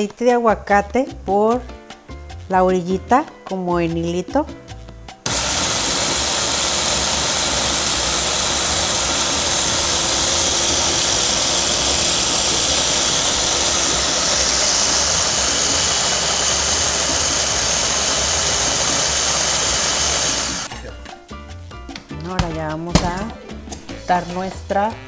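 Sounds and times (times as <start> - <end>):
food processor blending salsa: 5.3 - 20.7.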